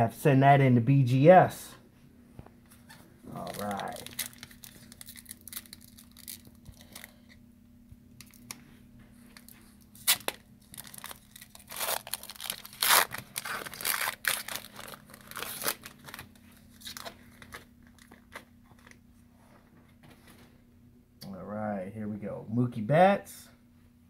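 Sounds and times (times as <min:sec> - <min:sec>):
wrapper ripping and crinkling: 0:03.3 - 0:07.2, 0:08.2 - 0:08.6, 0:09.3 - 0:19.0.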